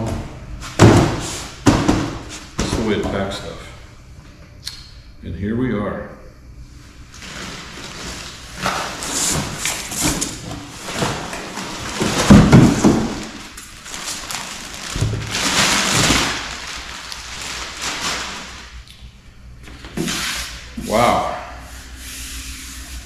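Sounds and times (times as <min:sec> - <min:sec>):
plastic wrap crinkling: 0:07.1 - 0:18.9.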